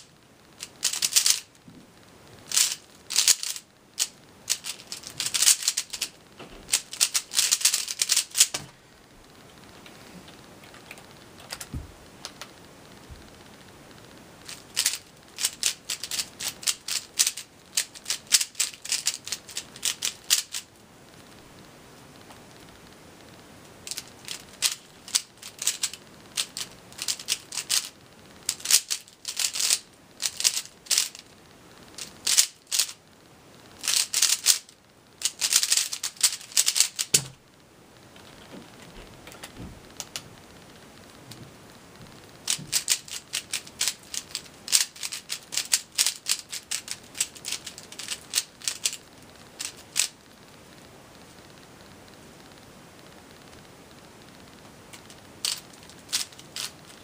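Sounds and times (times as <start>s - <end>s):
plastic puzzle cube clicking: 0.6s - 1.5s, 2.5s - 6.1s, 6.7s - 8.6s, 14.4s - 20.6s, 23.9s - 27.9s, 28.5s - 31.2s, 32.0s - 33.0s, 33.8s - 37.3s, 42.5s - 49.0s, 49.6s - 50.2s, 55.0s - 57.0s
soft thump: 11.7s - 12.0s.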